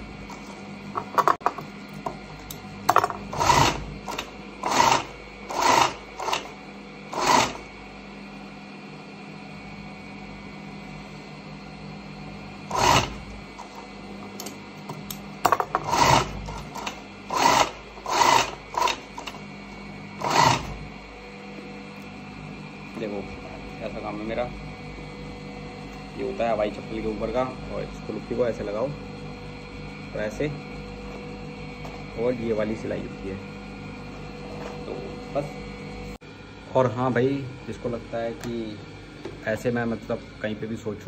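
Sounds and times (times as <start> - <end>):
steady hum: 0.0 - 41.0
sewing machine stitching: 3.3 - 7.6, 12.7 - 13.2, 15.8 - 19.4, 20.2 - 20.8.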